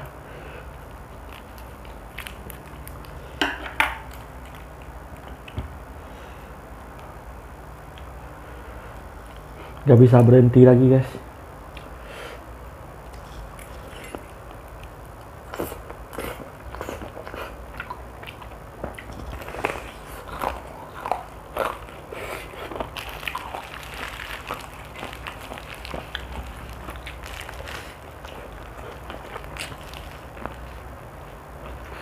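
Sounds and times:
person chewing crispy food: 0.0 - 5.6, 13.0 - 32.0.

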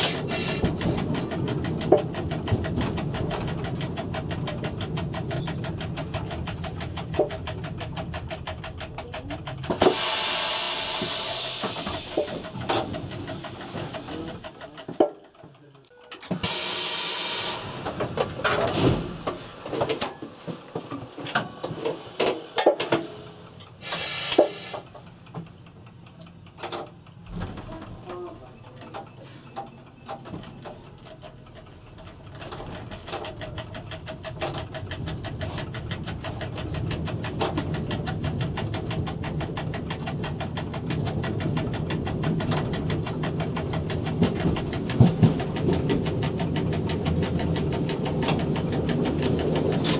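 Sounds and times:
train rumble: 0.0 - 49.9
short loud hisses: 9.8 - 14.0, 23.8 - 24.8
clicks from cab equipment: 22.6 - 27.0.

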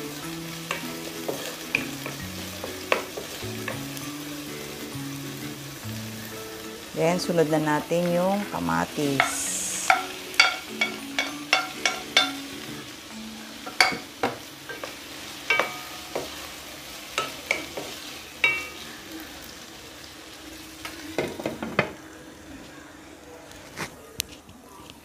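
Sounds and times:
tomatoes sizzling in oil: 0.0 - 23.3
wooden spatula knocking pan: 0.7 - 3.9, 9.2 - 12.4, 13.6 - 16.4.

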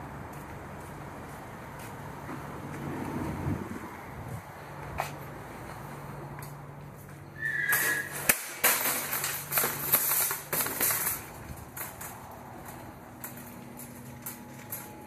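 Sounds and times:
shopping cart rolling: 7.4 - 15.0
shopping cart clanking: 7.7 - 15.0.

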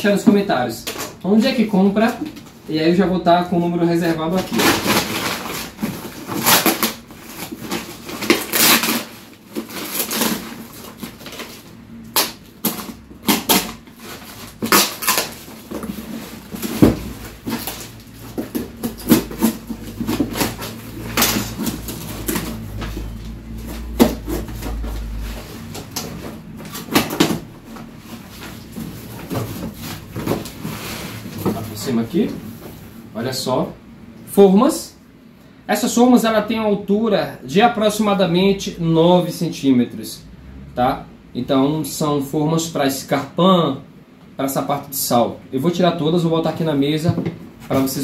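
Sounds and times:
cardboard flaps rustling: 3.6 - 32.9
packing tape ripping: 4.3 - 23.2, 23.8 - 27.6
paper tearing and crumpling: 4.3 - 23.2.

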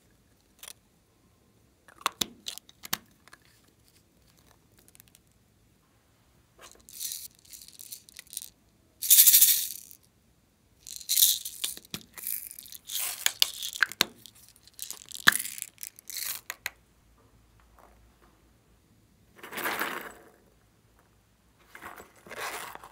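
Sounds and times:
plastic beads rattling into glass bowl: 6.8 - 10.0, 10.8 - 16.7.

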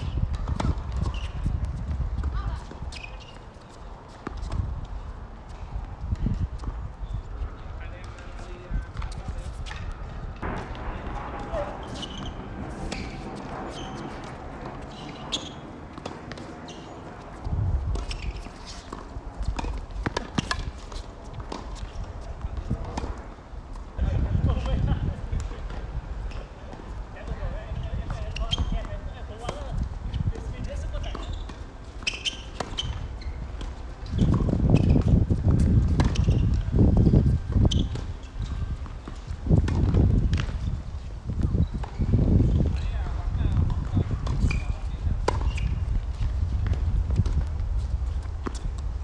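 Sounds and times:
tennis ball bouncing: 0.3 - 4.7, 8.1 - 23.9, 30.4 - 40.7, 43.5 - 47.6
racket hitting tennis ball: 8.9 - 23.9, 31.1 - 36.5, 43.8 - 47.5
low rumble: 10.0 - 15.3.

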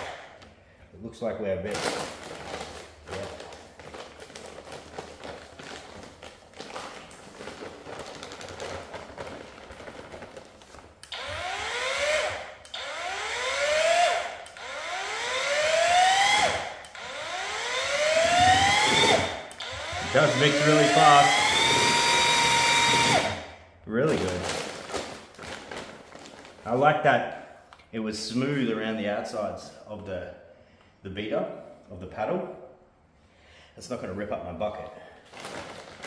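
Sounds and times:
paddle mixer motor whining: 11.1 - 23.4.

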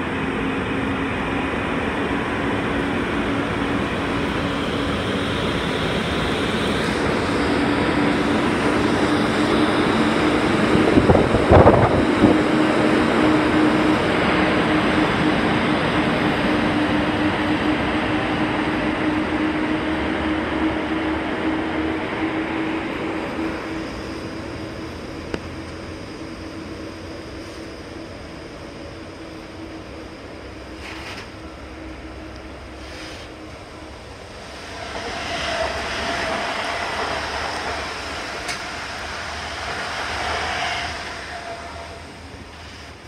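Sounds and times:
train wheels rumbling on rails: 0.0 - 43.0
train clatter: 34.6 - 43.0.

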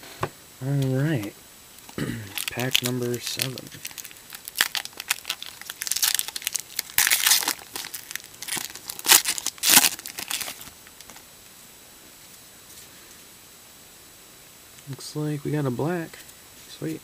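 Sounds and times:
foil wrapper crinkling and tearing: 2.3 - 11.2.

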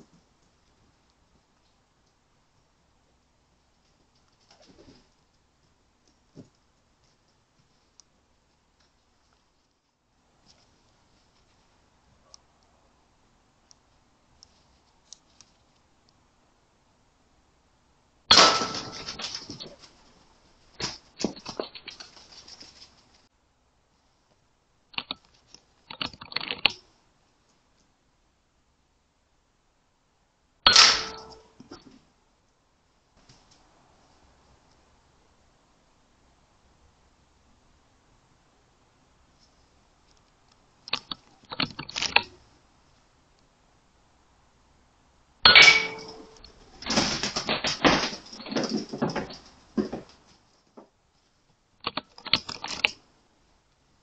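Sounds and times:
rat scuffling and pattering: 3.6 - 12.4, 18.6 - 23.3, 45.6 - 53.0
scrabbling on wooden boards: 46.6 - 51.0.

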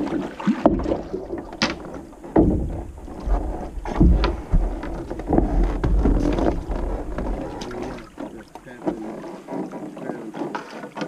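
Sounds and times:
paddle and hull knocking on rock: 0.0 - 11.0
water splashes: 0.0 - 11.0.

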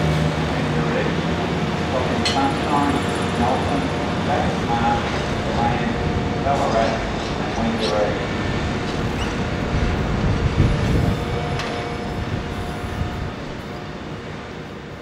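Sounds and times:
diesel train engines: 0.0 - 15.0
train wheels on rail: 0.0 - 15.0.

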